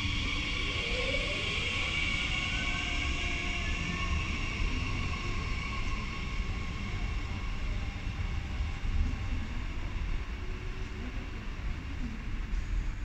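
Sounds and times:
electric train whine: 0:00.0 - 0:13.0.

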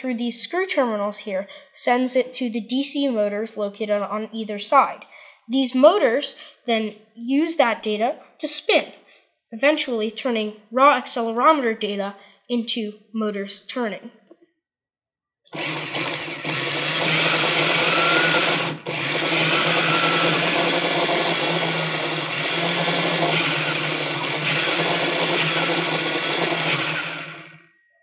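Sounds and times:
electric motors running: 0:15.6 - 0:27.6.

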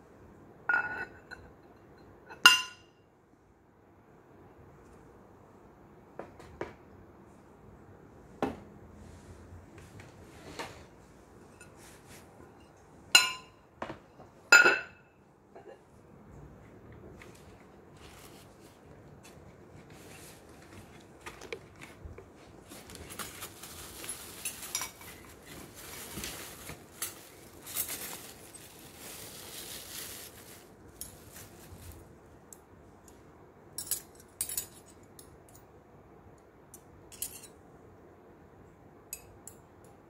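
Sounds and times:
cutlery clinking together: 0:13.2 - 0:13.6
plastic wrapping crinkling: 0:20.1 - 0:32.2.

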